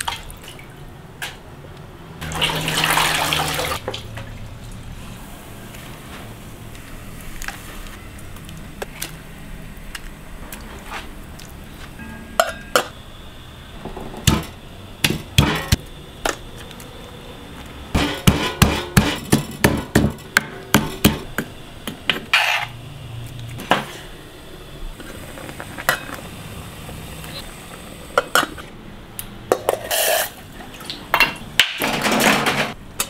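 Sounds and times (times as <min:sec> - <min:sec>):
pestle pounding in stone mortar: 0:18.0 - 0:21.3.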